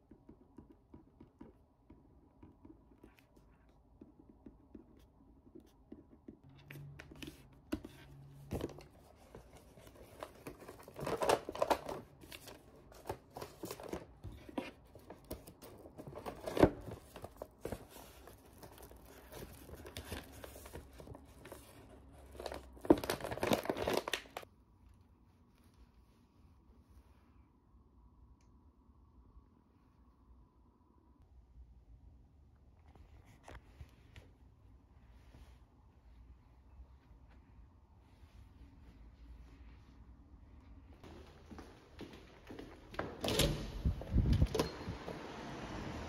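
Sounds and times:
paper bag crinkling: 15.8s - 24.4s.

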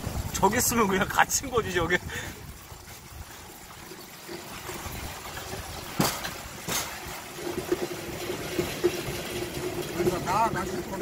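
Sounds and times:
steel wheels rumbling on track: 7.4s - 11.0s.

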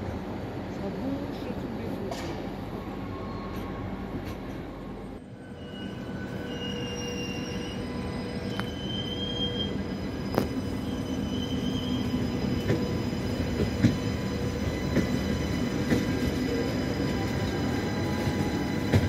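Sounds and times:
train rumbling: 0.0s - 19.0s
wheel or brake squeals: 5.4s - 15.5s.

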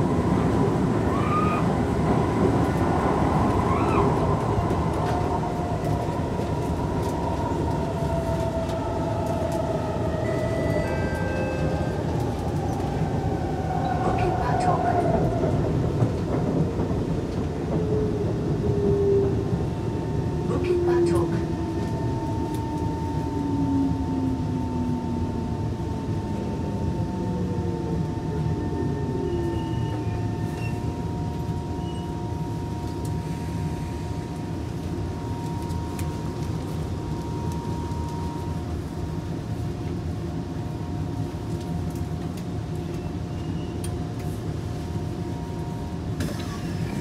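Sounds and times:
train traction motor whine: 0.0s - 16.6s
train rumbling hum: 0.0s - 47.0s.

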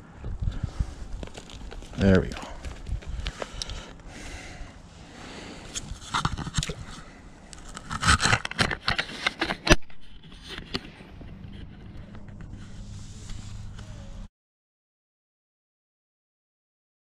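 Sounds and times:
clicks and scrapes of handling: 5.7s - 13.9s.

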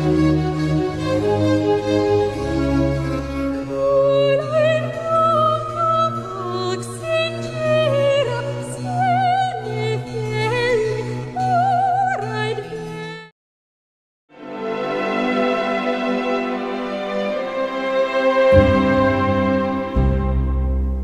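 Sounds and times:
low orchestral notes: 0.0s - 5.1s, 14.4s - 21.0s
operatic voice singing: 3.7s - 13.3s.

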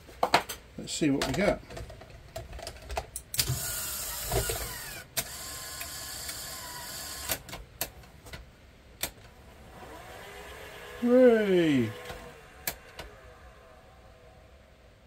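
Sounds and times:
sharp mechanical clicks: 3.2s - 7.9s
tape mechanism whirring: 3.3s - 8.0s, 9.0s - 15.0s.

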